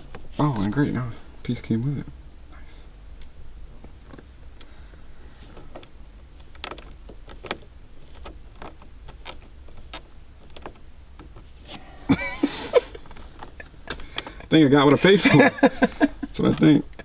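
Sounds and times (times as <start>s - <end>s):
fingernails picking and scratching: 5.4s - 11.8s, 12.9s - 14.5s.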